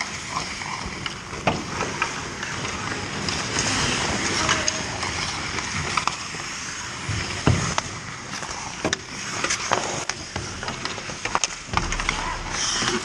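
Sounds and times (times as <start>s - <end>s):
hockey sticks and puck clacking: 0.0s - 13.0s
skate blades scraping ice: 0.0s - 13.0s
indistinct voices: 11.2s - 13.0s.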